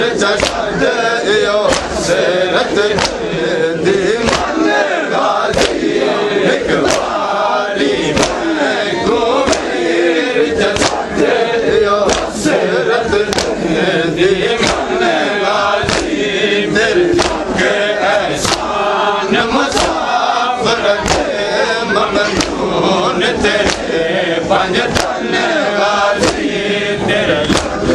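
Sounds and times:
crowd of men chanting: 0.0s - 27.9s
hands beating chests: 0.3s - 0.8s, 1.6s - 3.4s, 4.1s - 7.3s, 7.9s - 8.8s, 9.4s - 10.0s, 10.6s - 11.4s, 12.0s - 13.8s, 14.4s - 18.8s, 19.4s - 20.3s, 20.9s - 21.6s, 22.2s - 22.8s, 23.4s - 24.1s, 24.8s - 25.6s, 26.2s - 26.6s, 27.4s - 27.9s.

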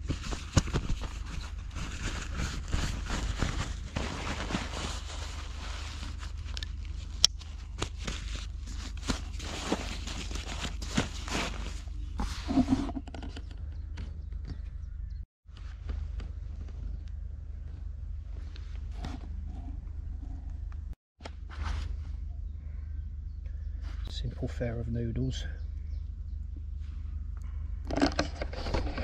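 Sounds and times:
fabric rustling: 0.0s - 12.8s.

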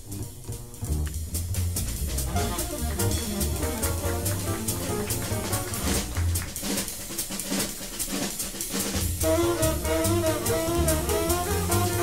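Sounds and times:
double bass notes: 0.0s - 6.6s, 9.1s - 12.0s
drum cymbal strokes: 1.3s - 12.0s
piano: 1.9s - 6.8s, 9.2s - 12.0s
tenor saxophone melody: 9.2s - 12.0s.

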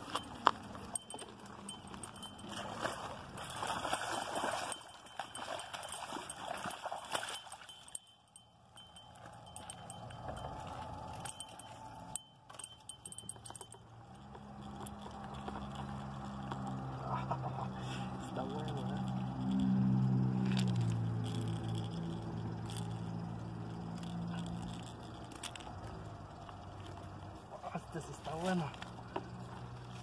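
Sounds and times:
gear clicking and knocking on stones: 11.2s - 17.4s.

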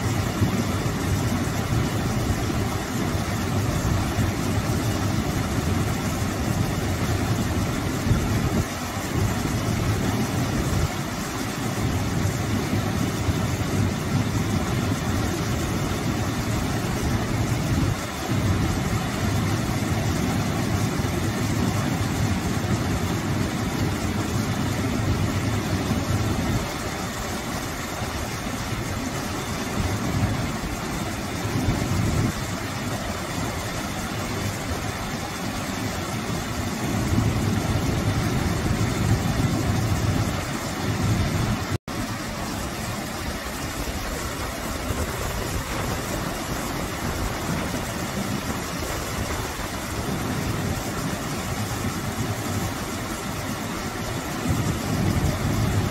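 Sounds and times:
waterfall splashing into pool: 0.0s - 55.9s.

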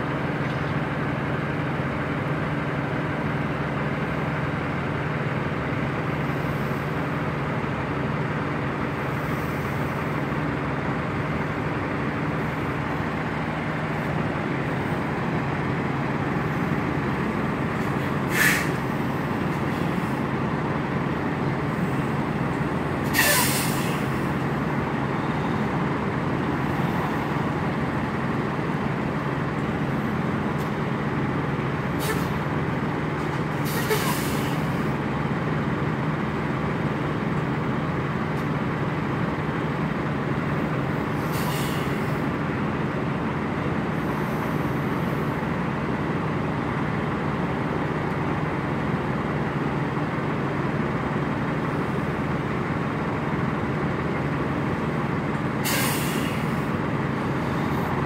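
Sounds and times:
diesel truck engine idling: 0.0s - 58.0s
air brake hisses: 18.3s - 18.8s, 23.0s - 24.1s, 32.0s - 32.4s, 33.6s - 34.8s, 41.2s - 42.2s, 55.6s - 56.7s.

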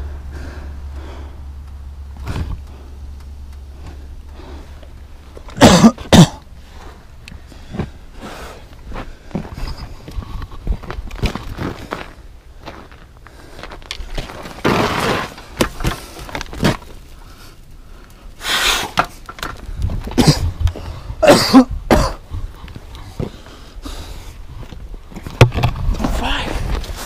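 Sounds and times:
tyres throwing up snow: 14.2s - 17.4s.

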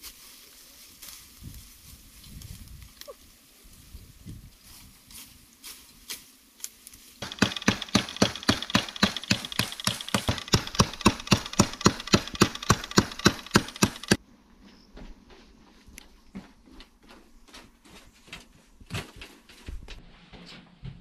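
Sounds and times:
bamboo being chopped: 7.2s - 14.2s.

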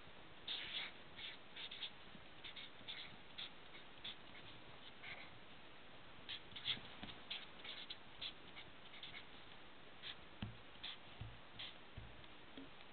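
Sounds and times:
marker scratching on paper: 0.5s - 5.4s, 6.3s - 11.8s
dull taps: 10.4s - 10.6s, 11.2s - 12.9s.

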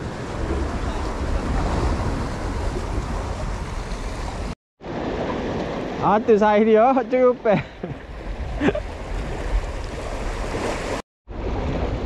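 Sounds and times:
wind rumbling on microphone: 0.0s - 6.0s, 7.8s - 12.0s
sea surf breaking on rocks: 0.0s - 12.0s.

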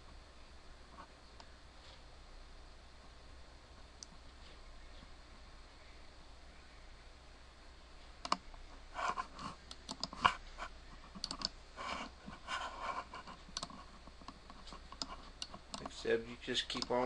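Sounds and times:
soft rustling: 0.9s - 2.2s, 2.9s - 6.0s, 7.8s - 17.0s
mouse and keyboard clicks: 9.7s - 10.4s, 11.1s - 11.6s, 13.5s - 15.9s, 16.7s - 17.0s.

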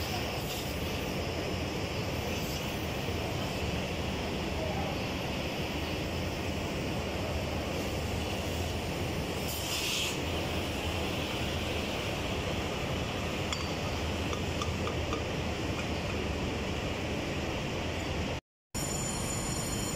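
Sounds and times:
cutting torch hissing flame: 0.0s - 14.2s.

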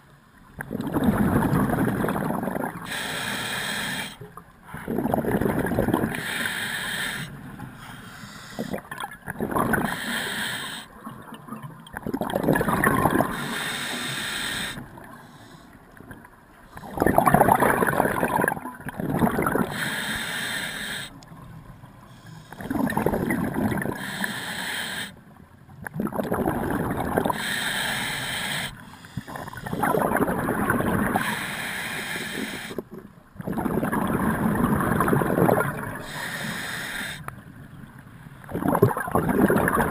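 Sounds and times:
diver exhaling bubbling gurgle: 0.6s - 3.1s, 4.8s - 6.4s, 8.6s - 11.2s, 12.0s - 15.2s, 16.8s - 19.9s, 22.6s - 24.2s, 25.9s - 27.5s, 29.2s - 31.3s, 32.4s - 36.9s, 38.5s - 39.9s.

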